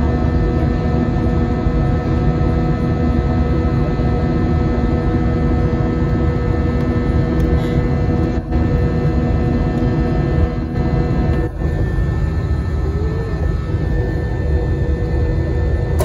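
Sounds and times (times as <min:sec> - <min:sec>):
jet engine rumble: 0:00.0 - 0:16.0
steady whining tones: 0:03.7 - 0:16.0.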